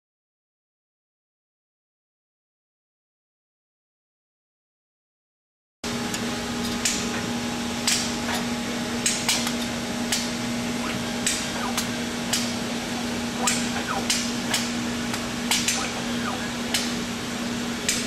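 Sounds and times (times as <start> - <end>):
machine hum: 5.8 - 18.0
falling machine whines: 5.9 - 18.0
mechanical clicks and clacks: 6.1 - 17.1.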